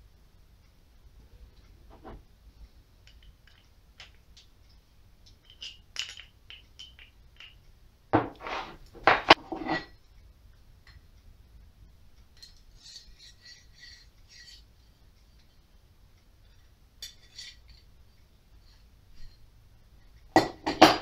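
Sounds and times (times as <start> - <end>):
metal parts clicking and clinking: 5.2 - 7.6
metal parts clattering on bench: 8.2 - 10.0
metal rod sliding through bushings: 12.5 - 15.0.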